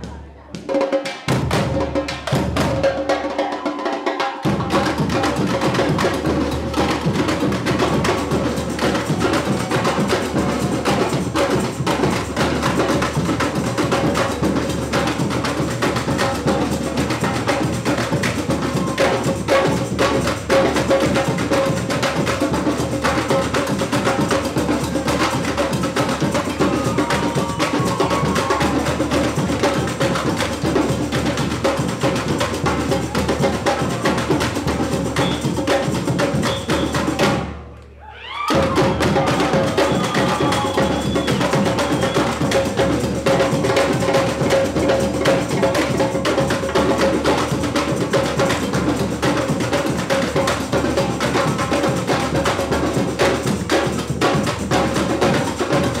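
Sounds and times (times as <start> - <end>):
bass drums: 0.0 - 0.7
samba percussion ensemble: 0.0 - 56.0.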